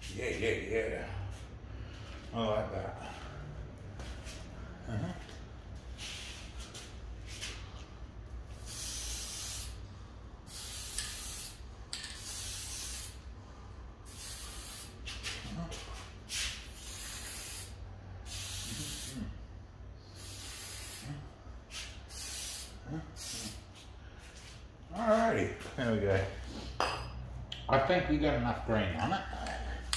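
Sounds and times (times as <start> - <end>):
spray-paint can hissing: 8.5 - 9.8, 10.5 - 13.2, 14.0 - 15.3, 16.3 - 19.2, 20.2 - 21.1, 21.7 - 23.6.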